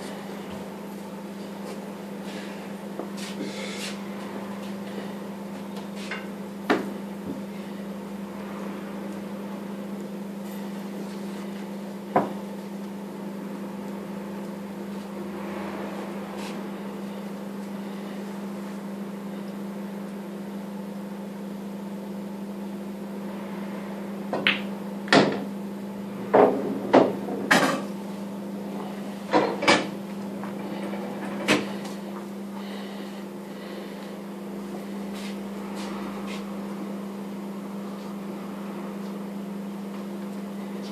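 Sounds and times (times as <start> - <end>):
steady low hum: 0.0 - 40.9
pool balls clacking: 24.4 - 25.5, 26.3 - 27.9.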